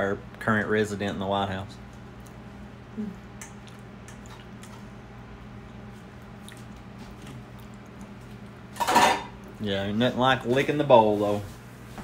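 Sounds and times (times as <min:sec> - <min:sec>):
low steady hum: 0:00.0 - 0:12.0
chewing and mouth sounds: 0:01.8 - 0:09.6.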